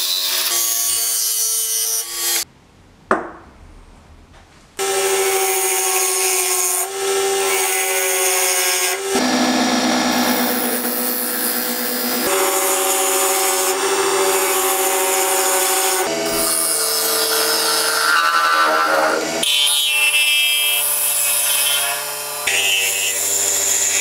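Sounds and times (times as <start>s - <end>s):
wood lathe motor hum: 6.8s - 19.4s.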